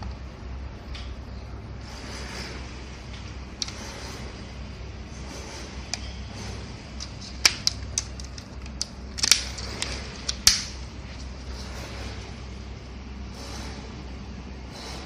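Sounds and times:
steady low hum: 0.0s - 15.0s
plastic clicks and snaps: 7.0s - 10.7s.

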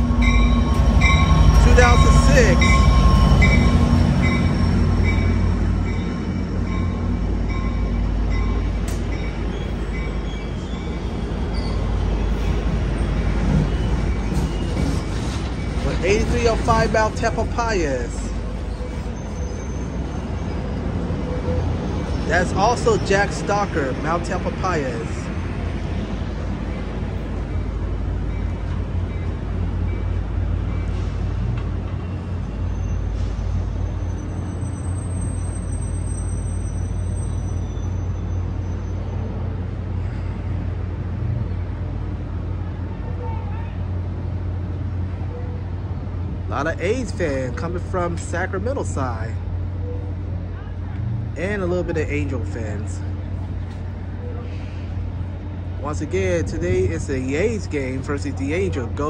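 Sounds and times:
bell ringing: 0.0s - 6.1s
diesel locomotive engine drone: 0.0s - 59.0s
train cars rumbling past: 0.0s - 59.0s.

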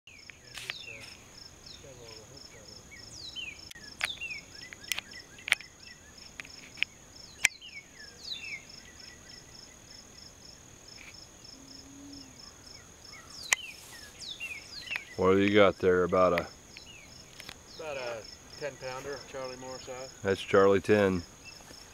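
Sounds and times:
birds chirping: 0.1s - 21.9s
insect chorus trilling: 0.1s - 21.9s
sharp clicks: 3.6s - 7.6s.

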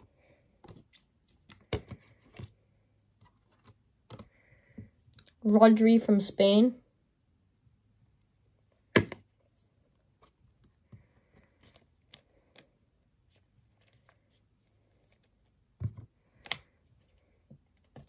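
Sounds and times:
trading cards and sleeves rustling: 9.4s - 18.0s.

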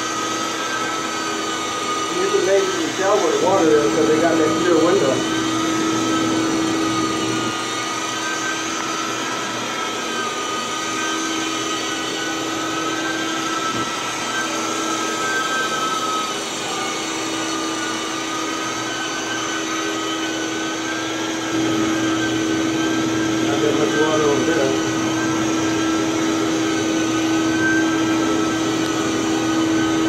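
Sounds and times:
carpet extractor vacuum roar: 0.0s - 30.0s
high whine: 0.8s - 9.6s.

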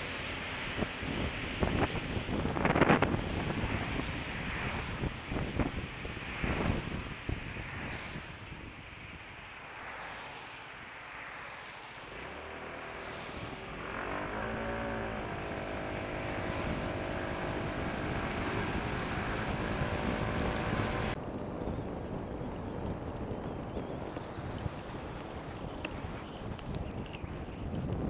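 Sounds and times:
wind rushing over microphone: 0.0s - 28.0s
scooter engine: 12.1s - 21.2s.

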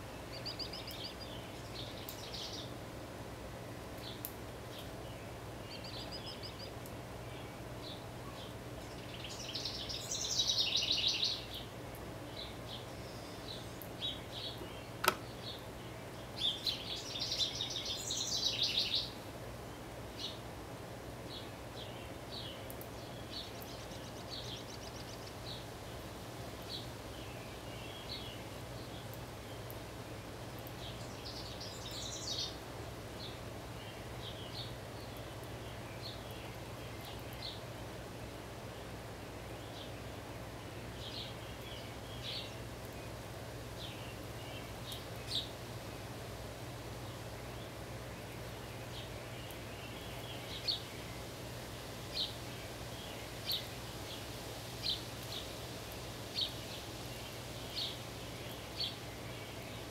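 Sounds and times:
songbirds trilling: 0.0s - 2.8s, 3.9s - 20.5s, 21.2s - 59.9s
sharp click: 15.0s - 15.3s.

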